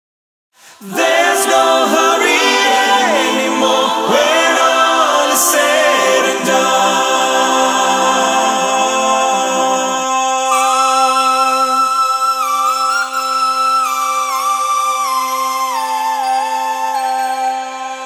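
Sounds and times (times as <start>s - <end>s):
a cappella choir singing: 0.6s - 12.4s.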